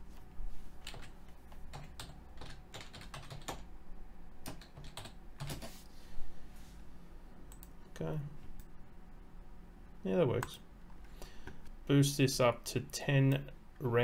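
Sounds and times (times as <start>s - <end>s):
typing on computer keyboard: 1.7s - 3.7s, 4.4s - 5.7s.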